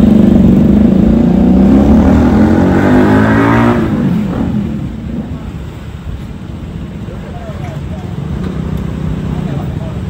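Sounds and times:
scooter engine accelerating: 0.0s - 4.8s.

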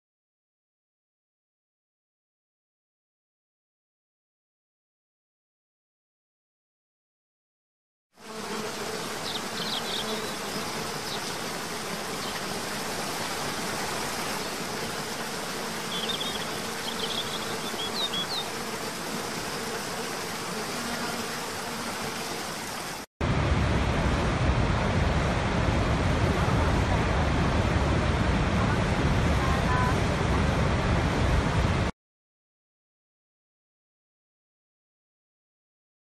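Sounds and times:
huge waterfall deep rush: 23.2s - 31.9s.

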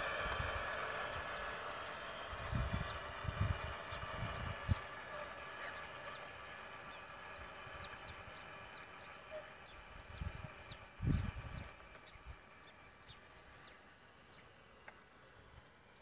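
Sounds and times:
faint steady hum: 0.0s - 16.0s
wind buffeting microphone: 2.3s - 4.9s, 9.9s - 12.4s
small birds chirping: 2.4s - 16.0s.

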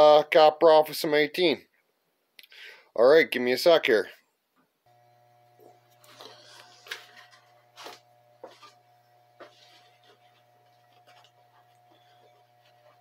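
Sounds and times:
faint steady hum: 4.4s - 13.0s.

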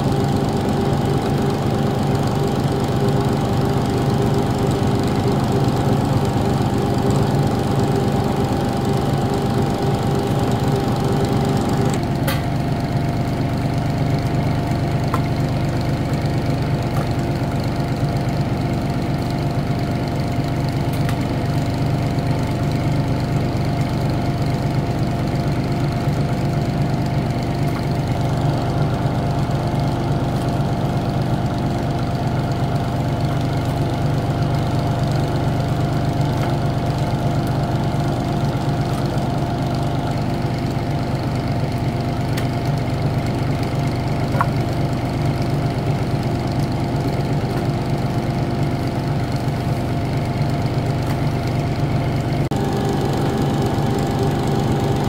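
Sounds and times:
thin steady whine: 0.0s - 42.2s, 42.9s - 55.0s
machine motor droning: 0.0s - 55.0s.

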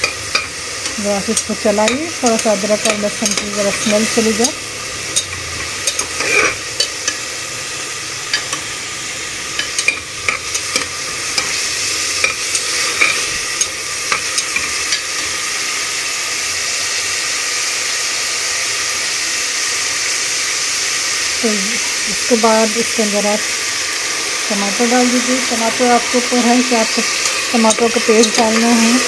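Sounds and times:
spatula scraping and tapping pot: 0.0s - 7.2s, 9.5s - 11.6s, 27.2s - 28.9s
onions sizzling in hot oil: 0.0s - 29.0s.

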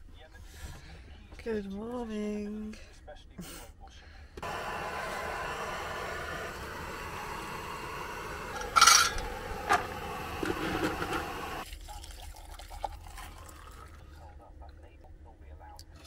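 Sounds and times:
camping stove hissing: 4.4s - 11.6s.

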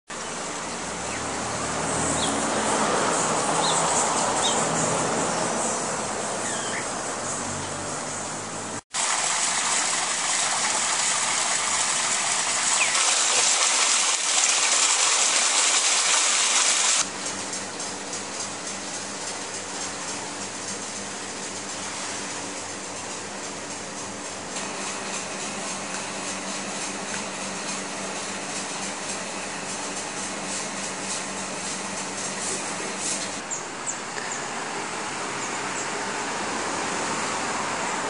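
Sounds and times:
rushing outdoor noise: 0.2s - 17.1s
high bird chirps: 6.4s - 6.9s, 12.8s - 13.0s.

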